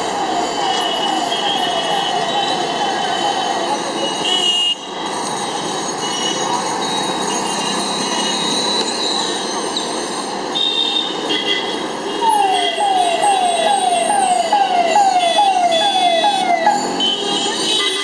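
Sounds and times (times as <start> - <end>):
traffic engines and motorbikes: 0.0 - 18.0
vehicle horns honking: 4.2 - 4.9, 16.7 - 18.0.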